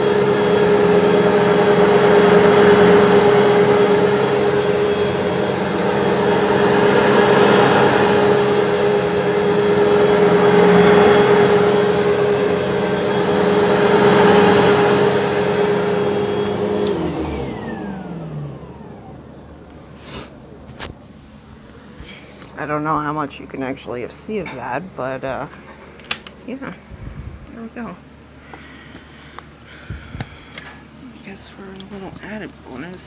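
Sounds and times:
vacuum motor winding down: 0:00.0 - 0:20.5
vacuum cleaner running on carpet: 0:00.0 - 0:24.3, 0:31.0 - 0:33.0.

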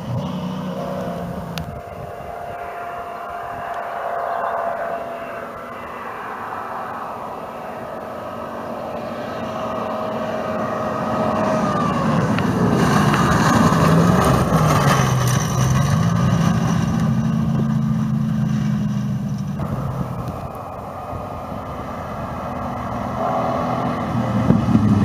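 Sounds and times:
gravel and tyre noise: 0:00.0 - 0:25.0
rally car engine passing: 0:00.0 - 0:25.0.

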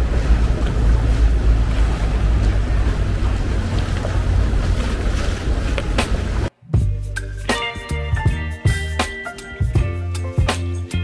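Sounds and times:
music with bass and drums: 0:05.8 - 0:11.0.

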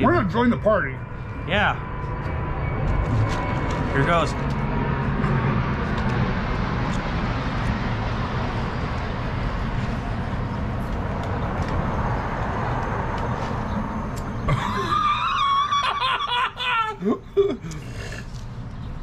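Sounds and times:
steady noisy rumble: 0:00.0 - 0:19.0
people laughing and squealing: 0:14.5 - 0:17.2.

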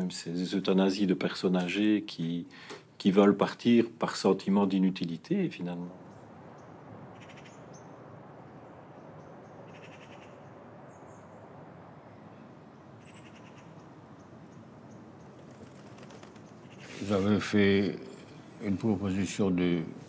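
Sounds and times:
distant crows cawing: 0:06.4 - 0:11.5, 0:12.3 - 0:17.0.

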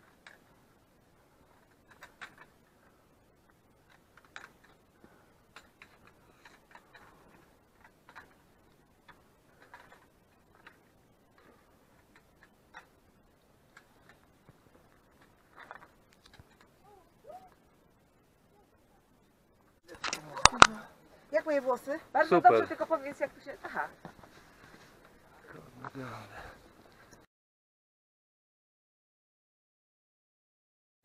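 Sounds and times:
quiet hiss: 0:00.0 - 0:27.3.

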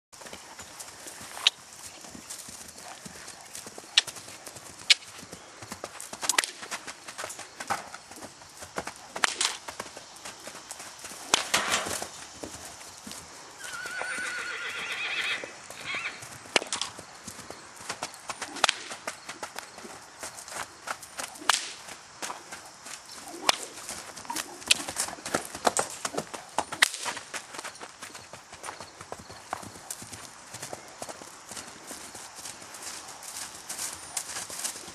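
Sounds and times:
horse hooves clip-clopping: 0:00.2 - 0:34.9
horse whinnying: 0:13.6 - 0:16.2.

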